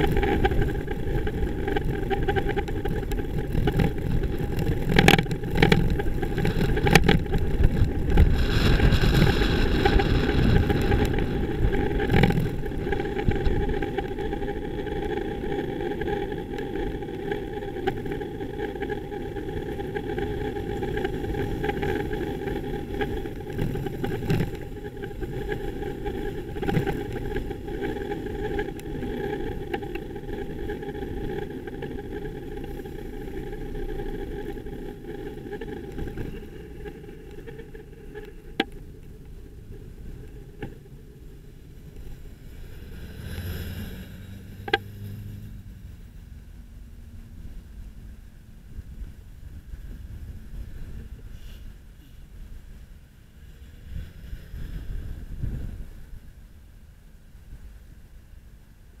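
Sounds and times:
bicycle rolling rumble: 0.0s - 59.0s
car and bus engines: 41.6s - 49.5s.

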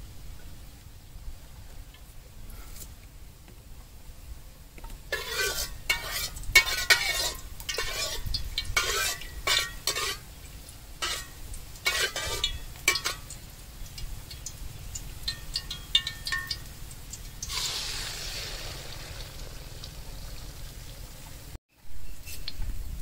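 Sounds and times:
metal ladle scraping a wok: 5.1s - 10.3s, 11.0s - 13.3s, 17.4s - 19.2s.

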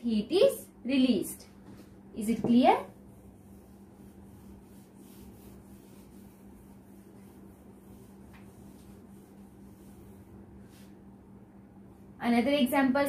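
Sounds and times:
steady low hum: 0.0s - 13.0s
duster rubbing on whiteboard: 1.8s - 11.0s.

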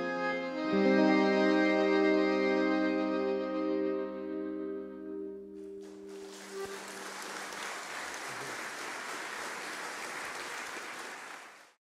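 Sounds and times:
audience applauding: 5.8s - 11.8s.

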